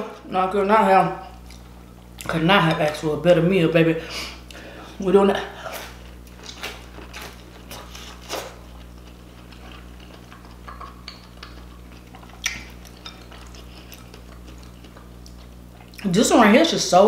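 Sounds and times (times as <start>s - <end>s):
steady low hum: 0.0s - 17.0s
chewing corn on the cob: 5.8s - 16.1s.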